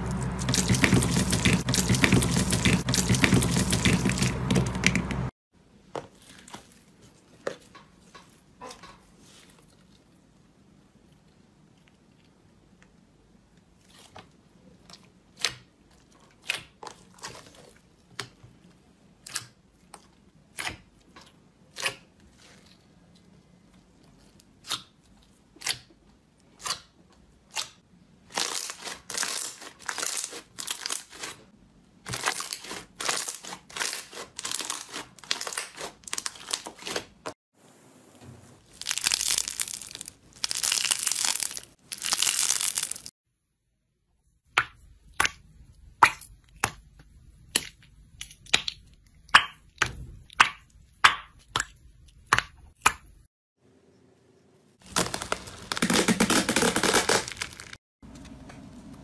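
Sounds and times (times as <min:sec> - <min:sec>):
stretched slime crinkly crackle: 0:28.3 - 0:31.4, 0:32.2 - 0:37.1, 0:38.6 - 0:43.1, 0:54.8 - 0:57.8
slime crackling: 0:38.6 - 0:43.1, 0:54.8 - 0:57.8.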